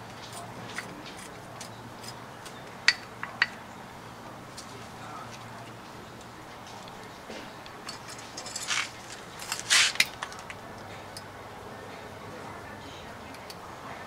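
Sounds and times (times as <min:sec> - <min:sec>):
hand tools clicking and scraping: 0:00.0 - 0:03.6, 0:04.5 - 0:11.3.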